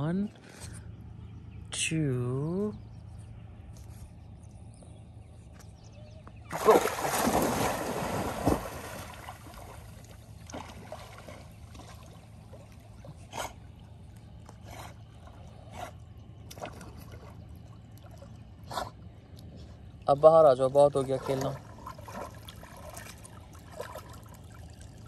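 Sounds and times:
dog splashing into water: 6.5s - 12.8s
dog swimming small splashes: 6.5s - 19.0s, 21.0s - 25.0s.

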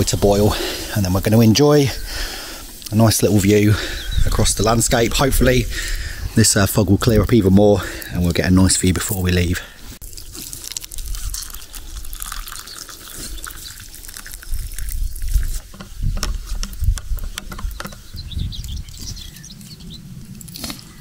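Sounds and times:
wind rumbling on microphone: 0.0s - 8.1s, 10.0s - 21.0s
water poured into a plastic cup: 10.0s - 15.6s.

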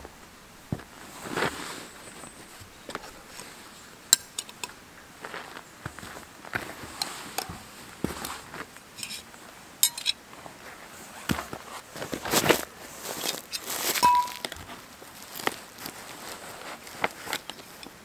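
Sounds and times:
metal tent pegs clinking: 9.0s - 10.2s, 13.2s - 14.6s
footsteps on dry leaves: 12.2s - 17.3s
metallic ringing note: 14.0s - 14.5s.

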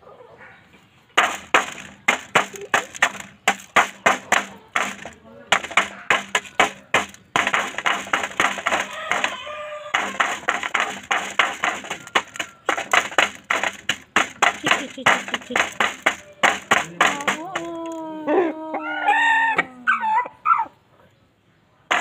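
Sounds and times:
beak pecking on metal pan: 1.2s - 17.7s
rooster falling call: 8.4s - 11.1s.

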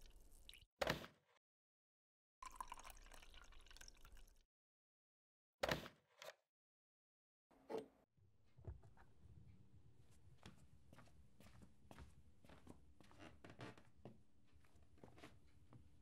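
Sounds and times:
water pouring into a mug: 2.4s - 4.4s.

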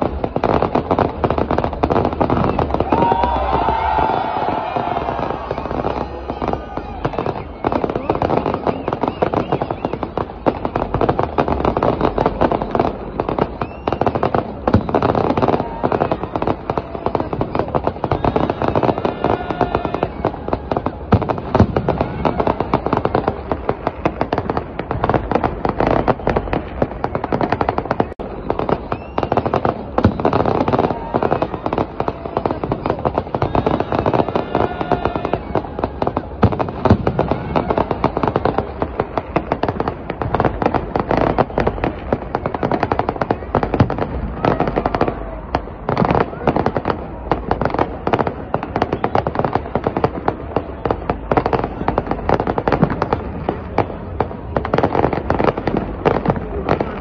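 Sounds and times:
fireworks bangs: 0.0s - 57.0s
rockets going up: 0.0s - 57.0s.

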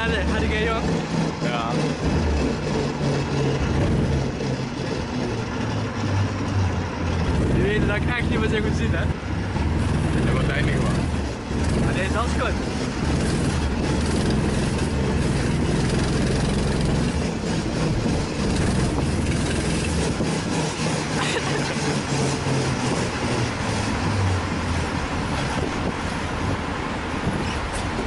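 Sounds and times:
small go-kart engine droning: 0.0s - 28.0s.

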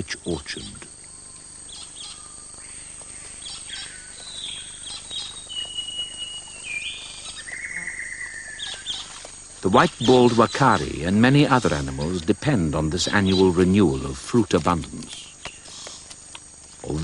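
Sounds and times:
bird chirps: 0.5s - 12.2s, 13.0s - 14.0s
insect clicks: 0.9s - 12.5s, 13.1s - 17.0s
bird whistling long notes: 1.0s - 9.0s.

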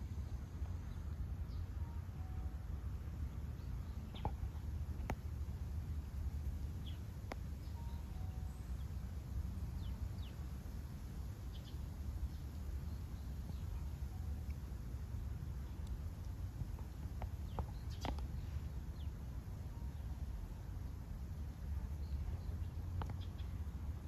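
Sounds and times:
low outdoor rumble: 0.0s - 24.0s
faint bird chirps: 6.8s - 9.1s.

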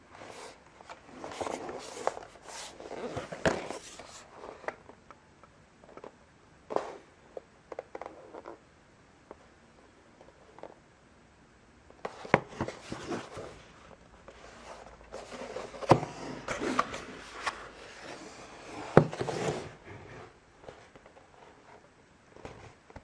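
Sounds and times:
cardboard box rubbing and scraping: 14.5s - 20.4s.

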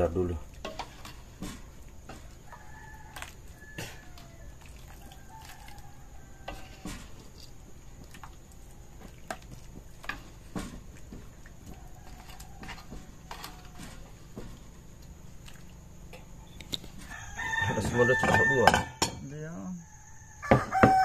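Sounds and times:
utensils tapping and scraping on wok: 0.0s - 4.4s, 5.6s - 8.4s, 9.0s - 15.2s, 18.2s - 19.3s.

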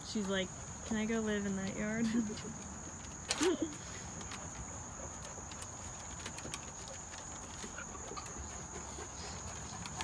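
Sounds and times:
insects chirring: 0.0s - 10.0s
dog claws clicking on wooden deck: 2.5s - 10.0s.

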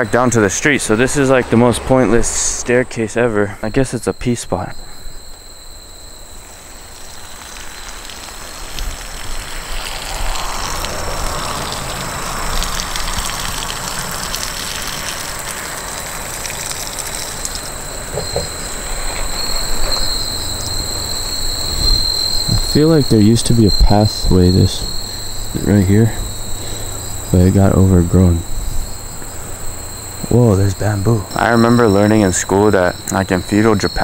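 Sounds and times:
broad rushing rumble: 0.0s - 4.8s
insects droning: 0.0s - 34.0s.

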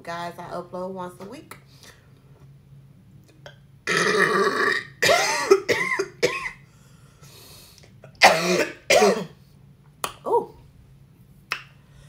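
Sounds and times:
woman burping loudly: 3.8s - 6.4s.

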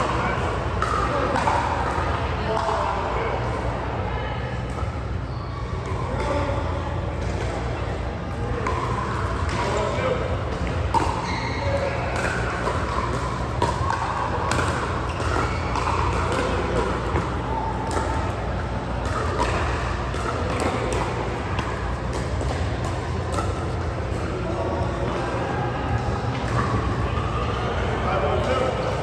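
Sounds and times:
indistinct background chatter: 0.0s - 29.0s
steady low hum: 0.0s - 29.0s.

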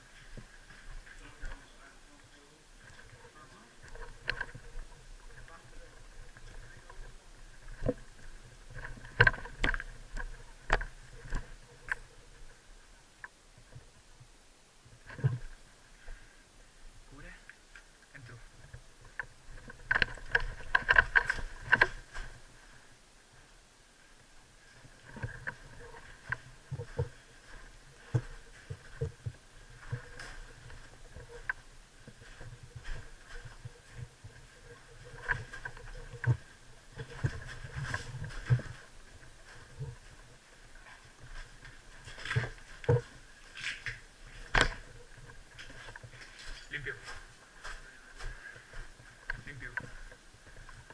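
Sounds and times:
footsteps crunching on gravel: 25.6s - 50.2s.

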